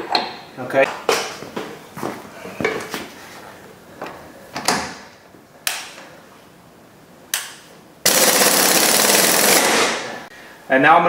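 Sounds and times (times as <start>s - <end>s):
pneumatic impact wrench hammering: 8.1s - 10.2s.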